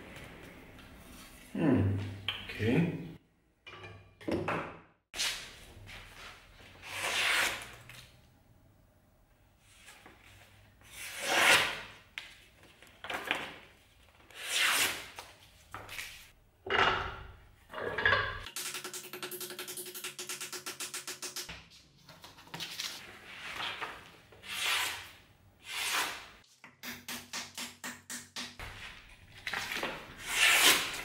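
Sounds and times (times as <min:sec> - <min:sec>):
knife slicing paper: 0:30.2 - 0:31.0.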